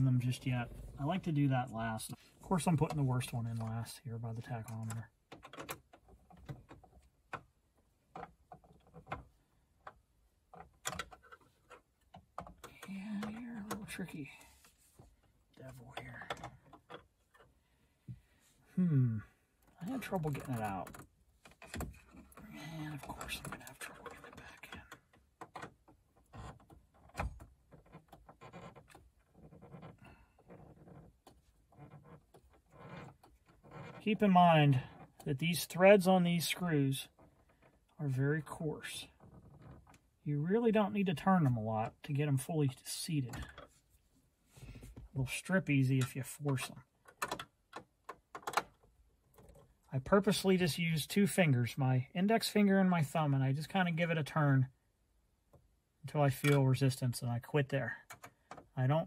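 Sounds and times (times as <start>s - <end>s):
clicks of plastic and screw handled: 4.5s - 14.0s, 46.0s - 49.9s, 58.0s - 58.8s.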